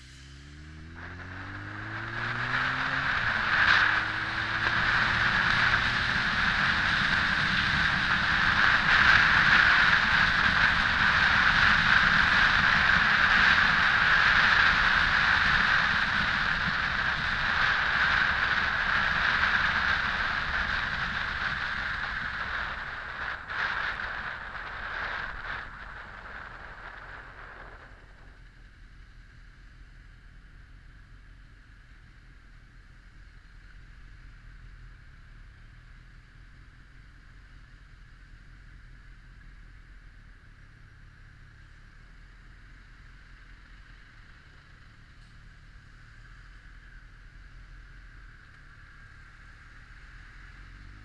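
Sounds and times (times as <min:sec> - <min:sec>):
motorcycle engine accelerating: 0:00.0 - 0:51.0
wind rushing over microphone: 0:00.8 - 0:28.5.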